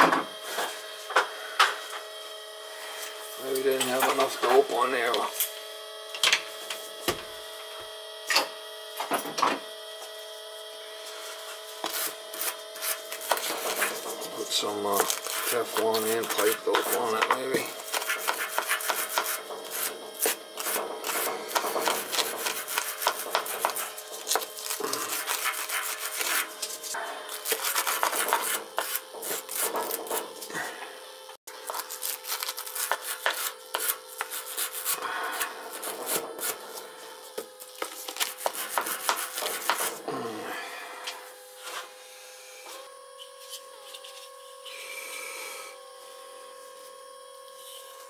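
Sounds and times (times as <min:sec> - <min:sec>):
wire brush scrubbing metal pipe: 0:11.8 - 0:30.6.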